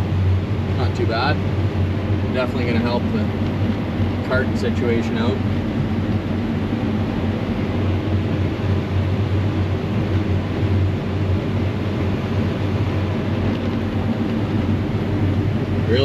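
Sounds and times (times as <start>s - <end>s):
combine harvester engine drone: 0.0s - 16.0s.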